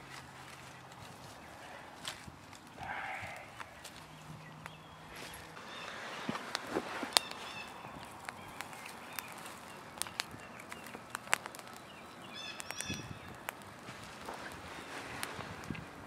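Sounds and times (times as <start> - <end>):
campfire crackling: 0.0 - 16.0
bird chirping: 2.8 - 13.5.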